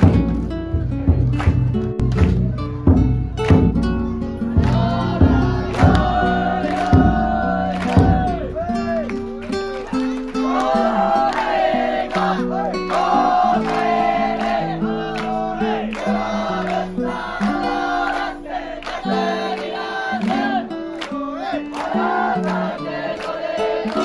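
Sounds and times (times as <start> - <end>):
plucked string accompaniment: 0.0 - 24.0
person singing: 4.4 - 9.2, 9.8 - 24.0.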